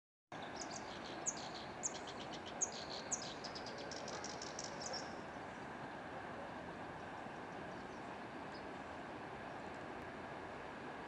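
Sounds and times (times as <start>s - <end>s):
songbirds singing: 0.3s - 6.0s, 7.0s - 8.8s.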